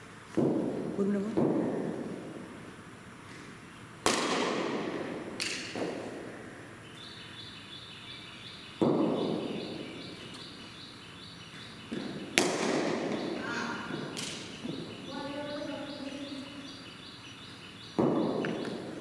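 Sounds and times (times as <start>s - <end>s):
ball thuds: 0.3s - 2.2s, 4.0s - 6.3s, 8.8s - 9.5s, 11.9s - 14.8s, 18.0s - 18.9s
cricket ball cracking on bat: 4.0s - 6.3s, 8.8s - 9.4s, 11.9s - 14.5s, 18.0s - 18.9s
high chirp: 13.2s - 18.8s.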